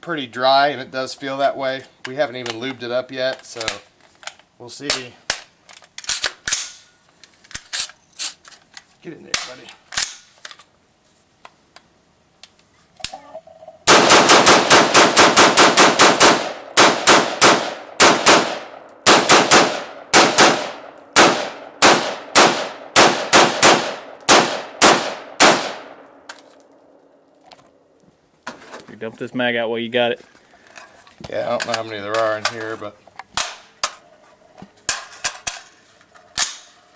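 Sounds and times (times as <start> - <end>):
rifle shots: 13.8 - 26.2.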